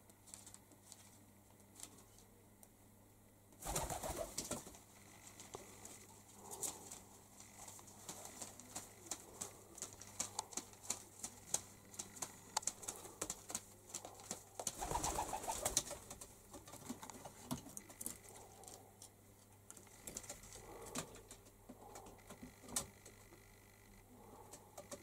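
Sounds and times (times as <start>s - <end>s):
pigeons cooing: 5.8s - 16.3s.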